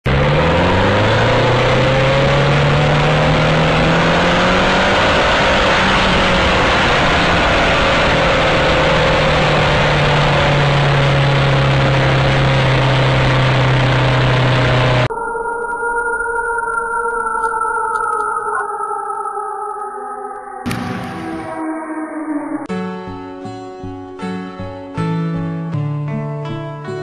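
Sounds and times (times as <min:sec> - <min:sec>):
motorcycle engine at high speed: 0:00.0 - 0:15.2, 0:20.6 - 0:21.7
loud wind rush: 0:03.5 - 0:12.5.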